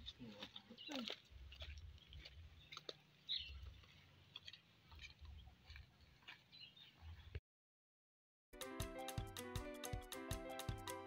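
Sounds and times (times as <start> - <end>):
footsteps on dirt path: 0.0 - 7.4.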